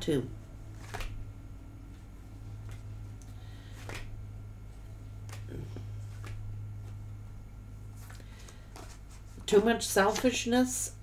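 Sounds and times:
low electrical hum: 0.0s - 11.0s
cards being shuffled: 0.7s - 1.2s, 2.5s - 4.2s, 5.2s - 7.0s, 7.9s - 9.5s.

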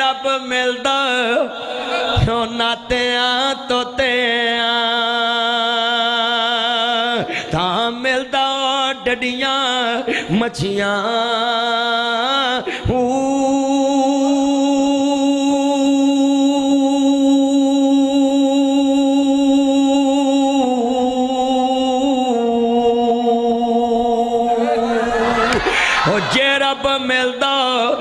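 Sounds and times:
man chanting: 0.0s - 28.0s.

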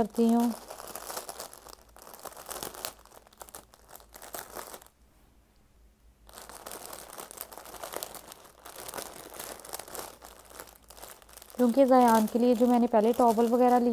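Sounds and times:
plastic packaging crinkling: 0.0s - 5.0s, 6.3s - 13.9s.

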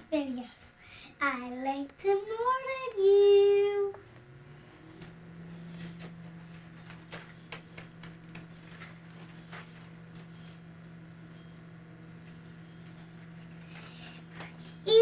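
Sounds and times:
steady low hum: 0.0s - 15.0s
basket clicks and rustles: 5.8s - 10.6s.

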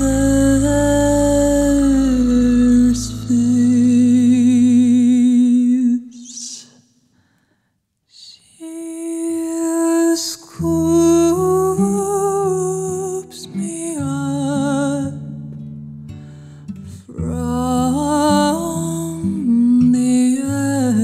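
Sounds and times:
low musical accompaniment: 0.0s - 5.3s
woman singing with vibrato: 0.0s - 6.8s, 8.2s - 15.3s, 17.1s - 21.0s.

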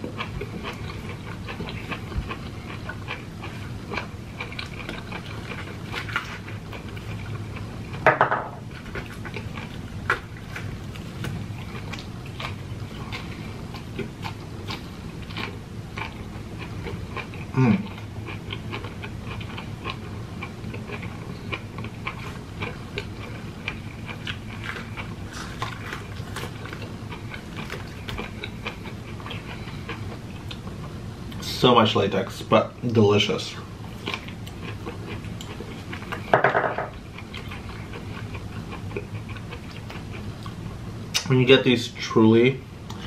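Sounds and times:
wet chewing and smacking: 0.0s - 8.0s, 8.7s - 31.4s, 33.9s - 41.3s.

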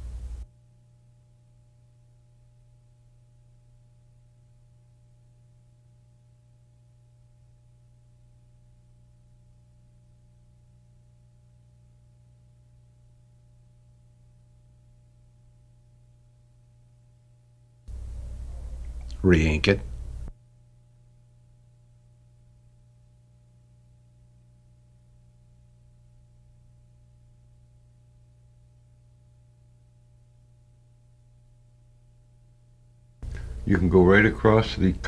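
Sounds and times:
faint electrical hum: 0.0s - 35.0s
thin steady tones: 17.9s - 20.3s.

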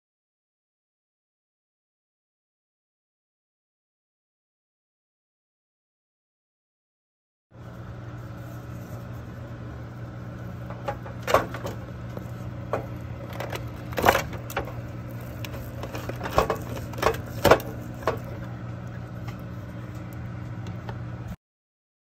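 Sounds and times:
steady low hum: 7.5s - 21.4s.

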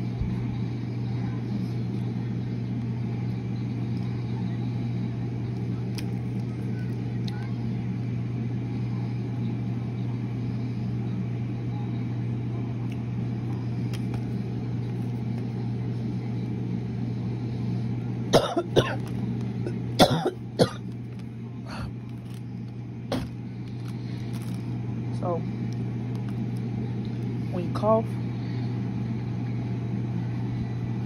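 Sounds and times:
steady low hum: 0.0s - 31.0s
person coughing: 18.3s - 20.9s, 21.7s - 22.0s.

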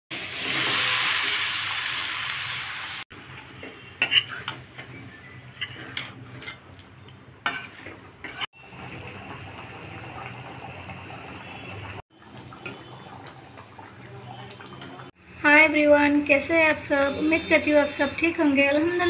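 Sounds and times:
food frying hiss: 0.1s - 3.1s
wooden spoon scraping pan: 5.4s - 6.7s, 7.5s - 8.5s.

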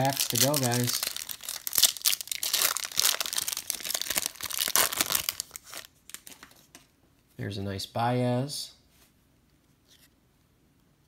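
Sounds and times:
card pack wrapper crinkling: 0.0s - 6.9s.

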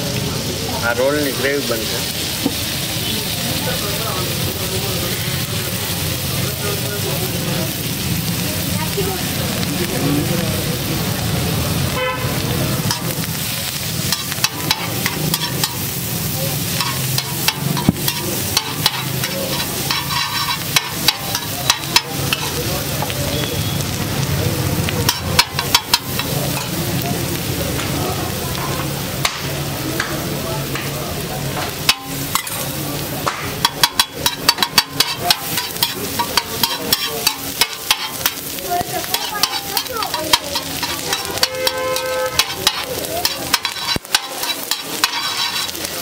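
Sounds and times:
egg sizzling on griddle: 0.0s - 46.0s
metal spatula scraping griddle: 12.8s - 23.1s, 25.0s - 26.8s, 31.6s - 46.0s.

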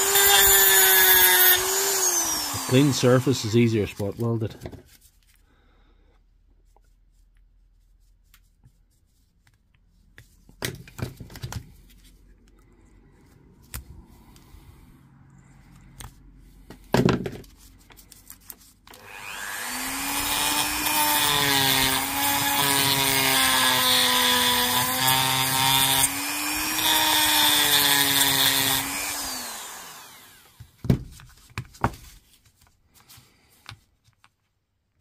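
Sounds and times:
rotary tool running: 0.0s - 3.5s, 19.0s - 30.6s.

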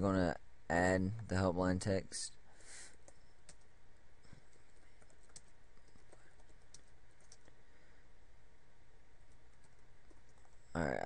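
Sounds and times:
keyboard typing clicks: 3.0s - 3.7s, 4.4s - 7.5s.

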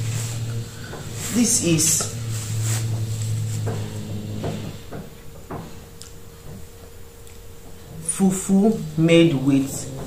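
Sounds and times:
soft crackles and knocks: 0.0s - 8.0s
steady low hum: 0.0s - 10.0s.

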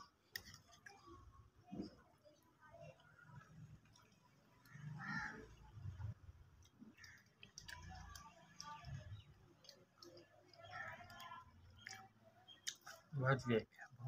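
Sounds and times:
person chewing food: 0.0s - 1.1s, 3.7s - 5.0s, 6.4s - 13.1s.

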